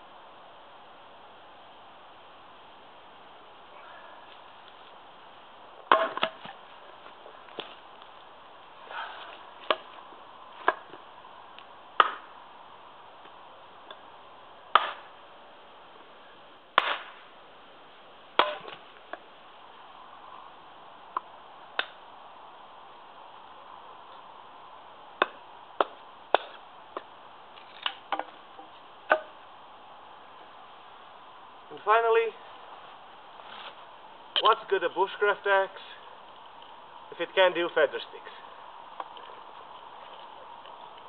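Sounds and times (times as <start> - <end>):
axe chopping wood: 5.8 - 6.6, 9.2 - 10.0, 10.6 - 11.0, 12.0 - 12.4, 14.7 - 15.2, 16.8 - 17.3, 18.4 - 19.2, 21.2 - 22.0, 25.2 - 27.1, 29.1 - 29.4.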